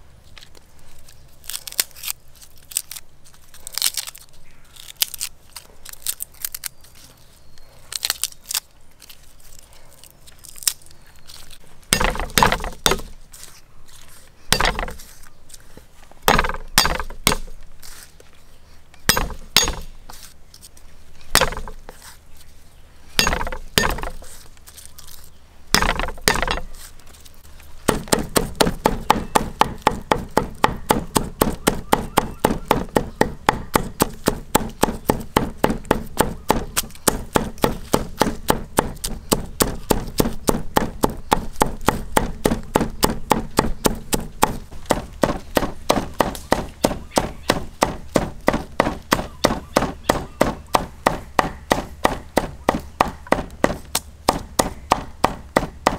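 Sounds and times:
knife chopping on wooden block: 11.9s - 13.1s, 14.5s - 15.0s, 16.3s - 17.5s, 19.1s - 19.9s, 21.3s - 21.8s, 23.2s - 24.3s, 25.8s - 26.7s, 27.9s - 55.9s.

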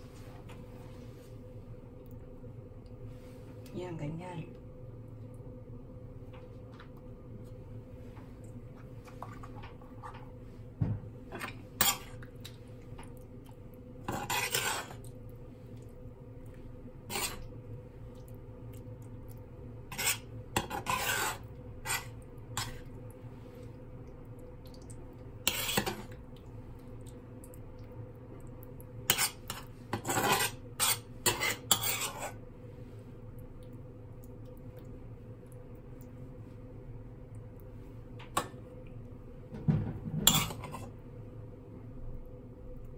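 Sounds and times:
spoon scraping frying pan: 14.1s - 15.0s, 17.1s - 17.5s, 19.9s - 22.8s, 25.5s - 26.1s, 29.1s - 32.4s, 40.1s - 40.9s.

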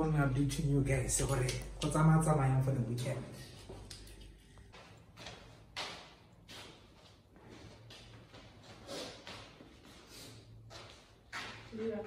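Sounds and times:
soft shuffling footsteps: 3.4s - 12.0s.

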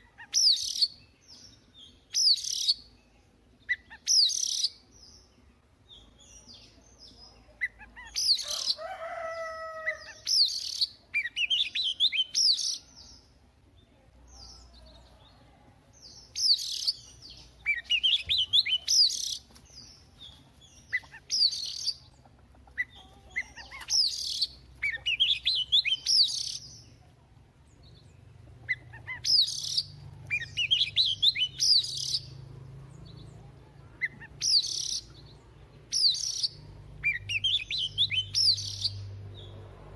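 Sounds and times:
bird singing trills and whistles: 0.2s - 5.2s, 10.0s - 13.2s, 16.1s - 22.1s, 22.8s - 26.8s, 28.7s - 32.4s, 34.0s - 39.6s.

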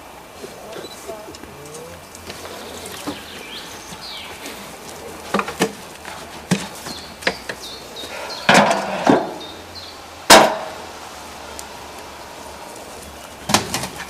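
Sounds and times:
faint high chirps: 0.4s - 4.7s.

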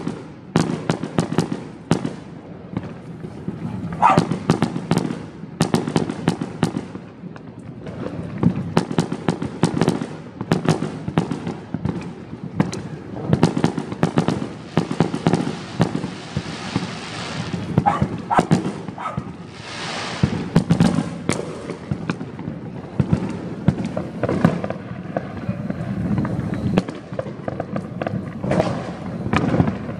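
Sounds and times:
fireworks bangs and pops: 0.0s - 29.9s
fireworks hissing: 12.6s - 29.9s.

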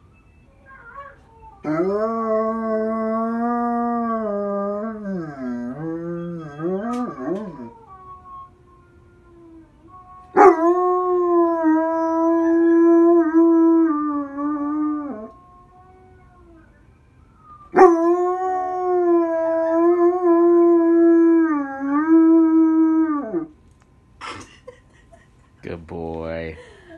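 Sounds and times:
dog howling: 0.7s - 16.8s.

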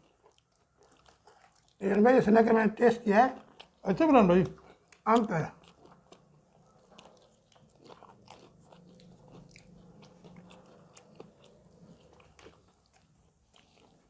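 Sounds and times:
chewing crisp fried chicken: 0.0s - 14.0s.

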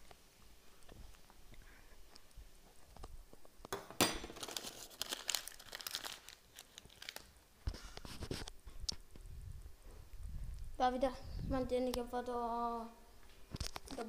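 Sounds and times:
crinkling and rustling: 4.3s - 9.0s, 13.4s - 14.0s.

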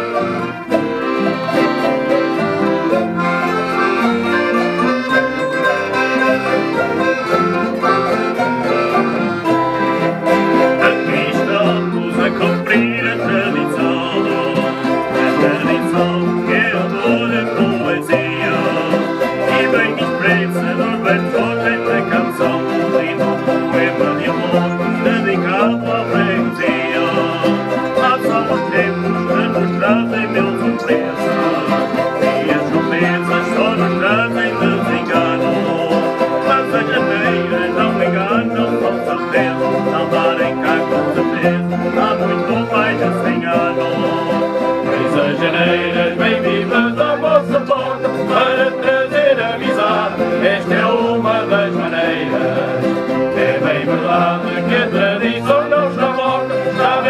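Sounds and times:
accordion: 0.0s - 57.0s
acoustic guitars strumming: 0.0s - 57.0s
mandolin plucking: 0.0s - 57.0s.

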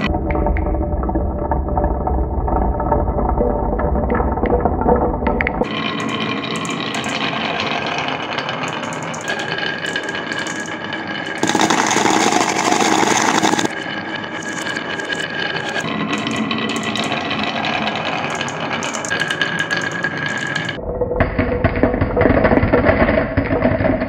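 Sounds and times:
marbles rattling down wooden run: 5.6s - 20.8s.

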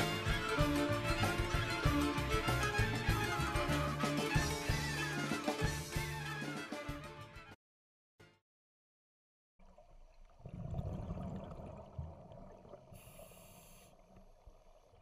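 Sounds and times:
underwater bubbling rumble: 9.6s - 13.4s
regulator breath hiss: 13.0s - 14.0s.

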